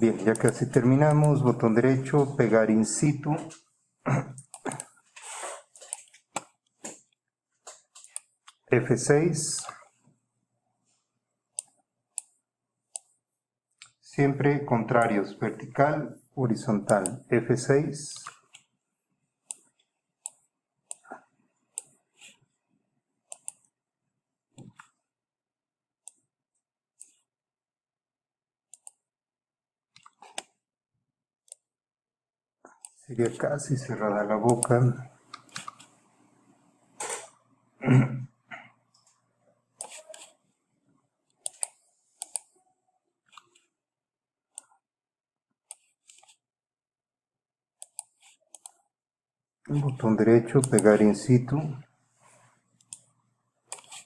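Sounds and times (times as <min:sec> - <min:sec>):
mouse and keyboard clicks: 0:00.2 - 0:01.5, 0:04.4 - 0:04.9, 0:16.9 - 0:17.2, 0:23.3 - 0:23.7, 0:34.5 - 0:35.9, 0:39.8 - 0:40.4, 0:41.4 - 0:42.6, 0:45.7 - 0:46.4, 0:47.8 - 0:48.8, 0:49.8 - 0:51.0, 0:53.7 - 0:54.0.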